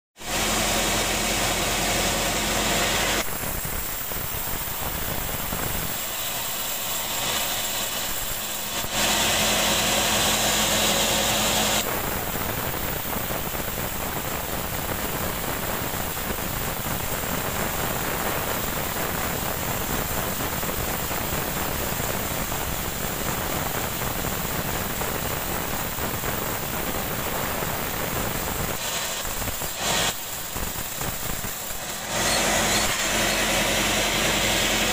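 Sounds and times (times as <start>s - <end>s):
band sawmill blade cutting log: 0.3s - 3.3s, 5.9s - 11.9s, 28.8s - 34.9s.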